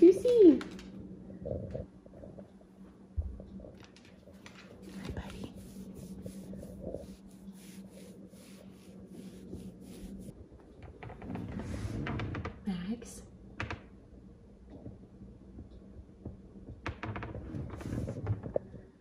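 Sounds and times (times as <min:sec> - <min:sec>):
hand rubbing dog's coat: 0:04.6 - 0:10.3.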